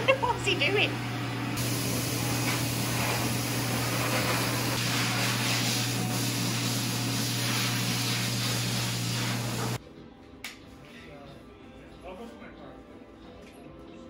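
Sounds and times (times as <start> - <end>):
blow dryer running: 0.0 - 9.8.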